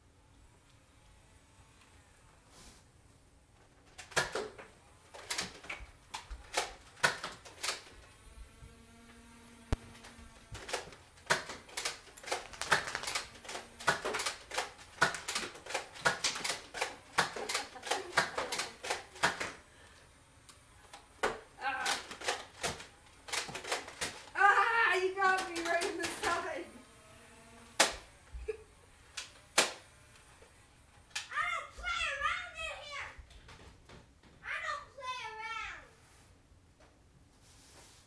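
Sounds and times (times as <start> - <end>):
sharp clicks and clacks: 9.8 - 19.6, 20.9 - 24.4, 25.2 - 26.5.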